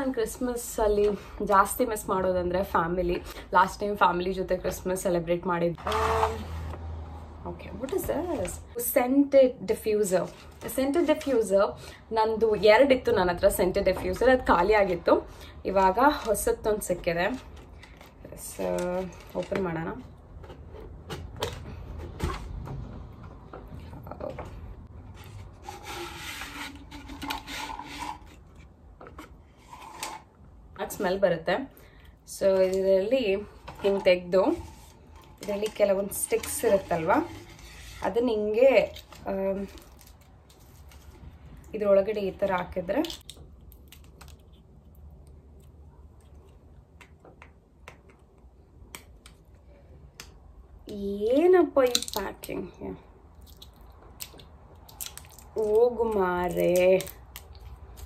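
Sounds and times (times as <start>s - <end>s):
cardboard rubbing and scraping: 25.0s - 28.5s.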